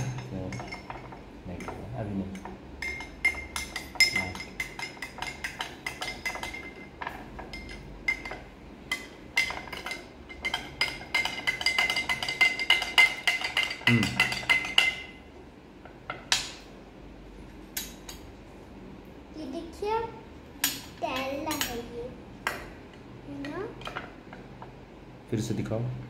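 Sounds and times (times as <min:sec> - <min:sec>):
spoon clinking against glass: 0:00.0 - 0:06.9, 0:07.5 - 0:15.1.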